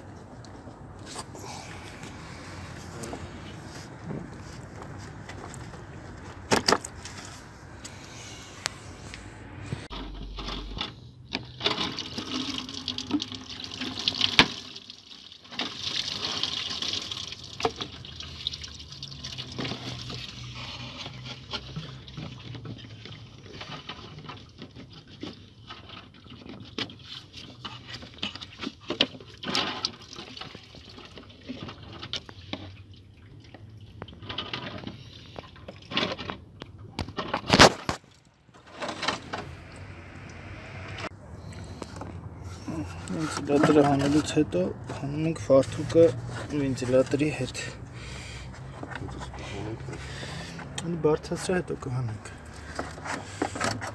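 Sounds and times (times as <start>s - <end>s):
coolant splashing and trickling: 10.0s - 39.9s, 41.1s - 53.9s.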